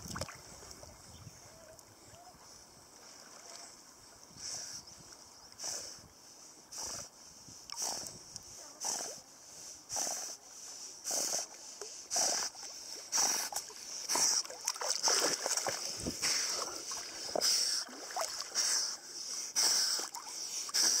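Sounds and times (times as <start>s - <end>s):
water splashing and sloshing: 0.0s - 1.1s, 2.9s - 4.1s, 11.8s - 19.0s.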